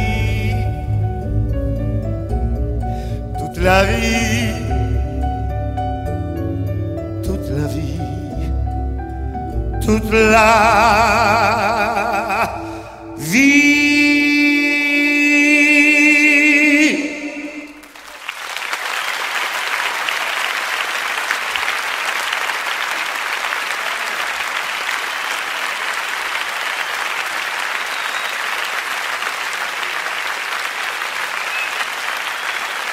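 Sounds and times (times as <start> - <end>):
audience applause: 17.7 - 32.9.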